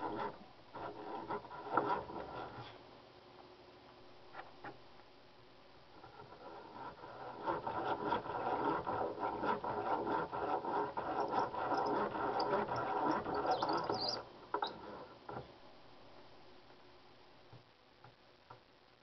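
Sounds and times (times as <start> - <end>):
hand drill boring through wood: 7.4 - 14.2.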